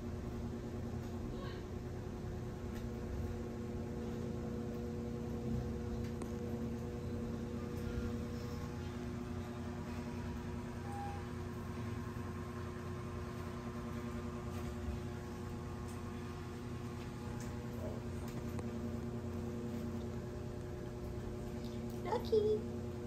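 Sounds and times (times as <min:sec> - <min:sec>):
low mechanical hum: 0:00.0 - 0:23.0
faint high tone: 0:10.8 - 0:11.4.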